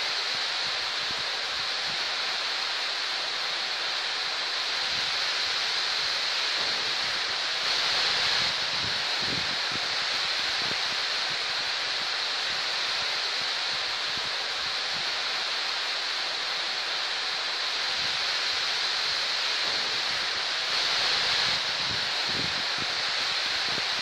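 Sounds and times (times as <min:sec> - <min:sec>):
heavy rain on trees and grass: 0:00.0 - 0:24.0
wind rumbling on microphone: 0:06.5 - 0:12.6, 0:19.1 - 0:24.0.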